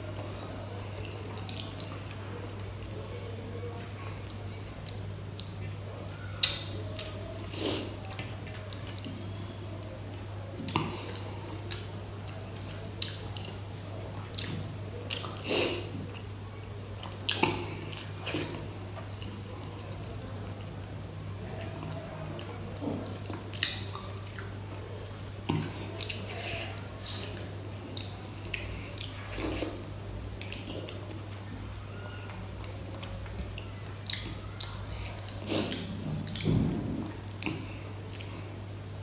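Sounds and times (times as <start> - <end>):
chewing: 3.6 - 16.3, 17.0 - 38.6.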